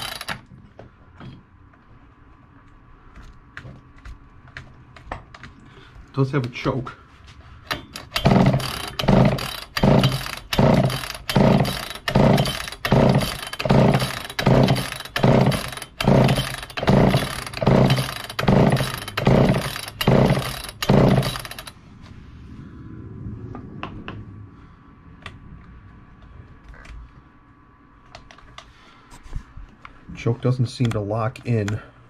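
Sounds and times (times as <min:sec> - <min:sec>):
chainsaw pull-cord cranking: 0:00.0 - 0:00.5, 0:07.7 - 0:21.8.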